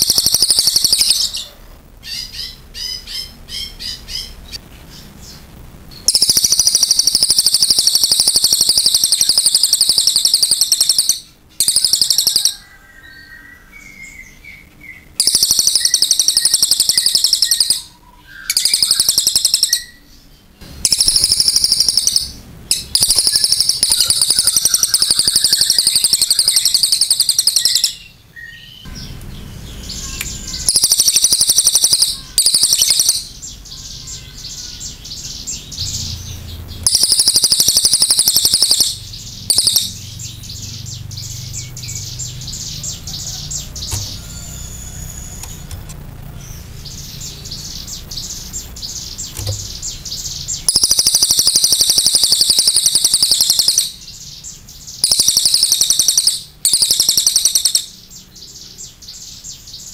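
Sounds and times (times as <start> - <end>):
jay rattling trills: 20.6 - 28.1, 28.9 - 54.1.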